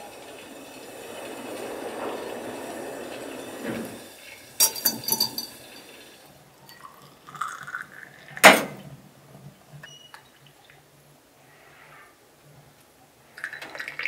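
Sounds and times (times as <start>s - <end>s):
liquid filling a vessel: 0.0s - 8.5s, 13.3s - 14.0s
tea glasses clinking: 4.6s - 7.5s.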